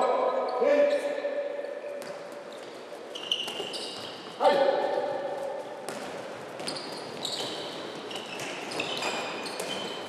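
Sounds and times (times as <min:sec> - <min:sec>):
ball bouncing on wooden court: 0:01.9 - 0:04.1, 0:05.8 - 0:10.0
shoes squeaking on floor: 0:02.0 - 0:04.4, 0:06.0 - 0:10.0.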